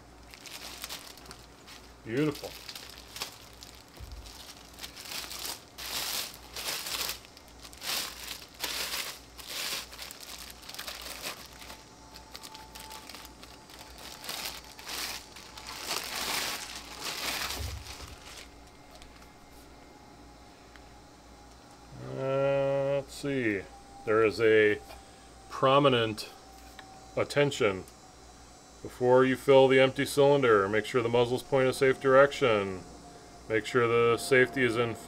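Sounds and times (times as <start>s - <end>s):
plastic wrap rustling and crinkling: 0.2s - 19.3s.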